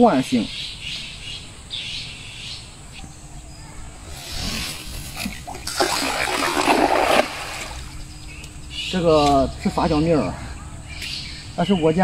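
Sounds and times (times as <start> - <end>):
net splashing into water: 4.2 - 8.0.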